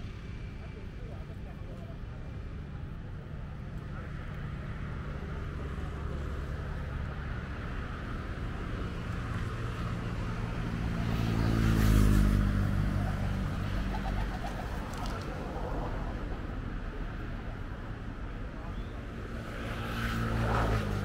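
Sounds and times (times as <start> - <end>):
low hum of engines: 0.0 - 21.0
motor vehicle passing by: 4.0 - 16.6, 18.5 - 21.0.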